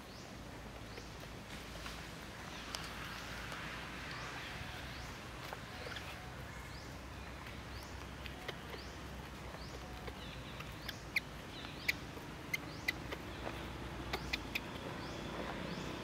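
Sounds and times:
faint bird chirps: 4.2s - 16.0s.

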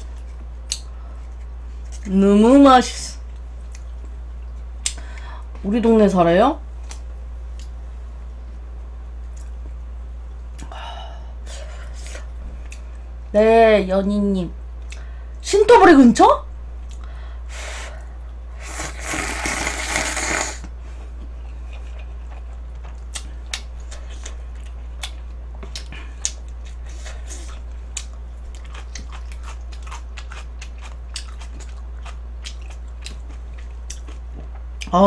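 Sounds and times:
low steady hum: 0.0s - 35.0s
noodles slurped: 18.6s - 20.7s
close chewing with wet clicks: 21.6s - 35.0s.

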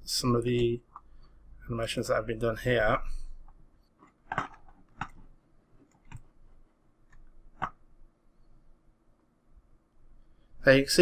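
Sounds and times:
computer mouse clicks: 3.4s - 6.3s, 7.1s - 7.8s.

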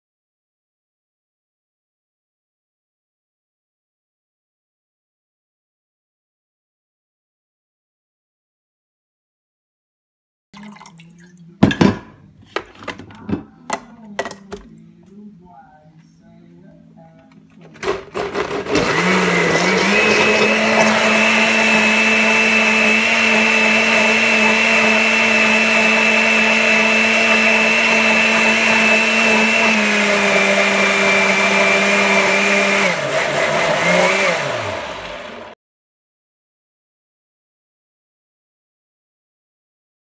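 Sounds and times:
blender motor whining: 17.8s - 35.6s.

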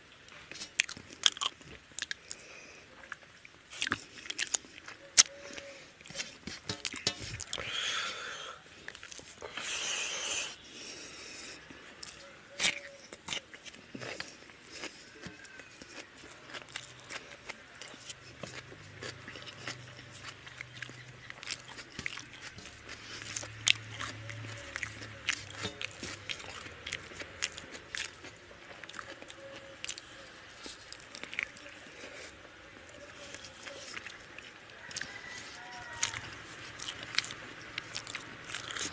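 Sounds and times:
wet chewing and lip smacks: 0.4s - 2.4s, 3.0s - 7.8s, 8.8s - 9.7s, 10.4s - 38.9s
fingers squishing rice on plate: 11.6s - 38.9s.

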